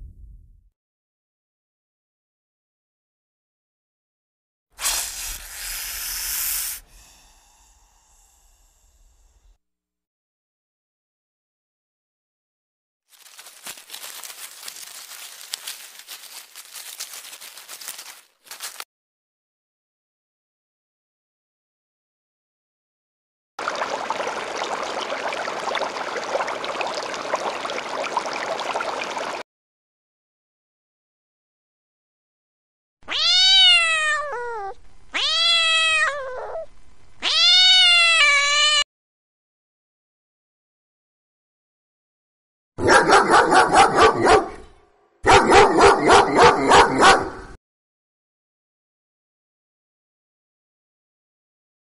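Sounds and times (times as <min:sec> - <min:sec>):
aquarium water bubbling: 0:23.6 - 0:29.4
dog barking rapidly: 0:42.8 - 0:47.6.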